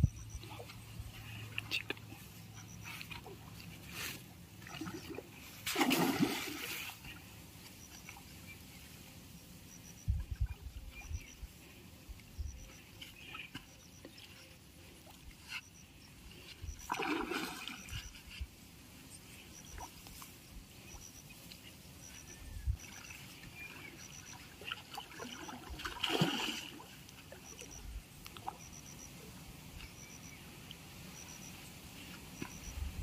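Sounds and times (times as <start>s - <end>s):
river water splashing: 0.4s - 9.2s, 16.3s - 32.7s.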